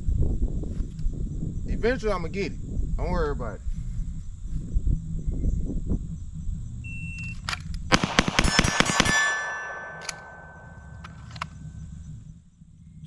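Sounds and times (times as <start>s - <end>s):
pistol shots: 7.9s - 11.4s
steel targets ringing: 8.0s - 11.0s.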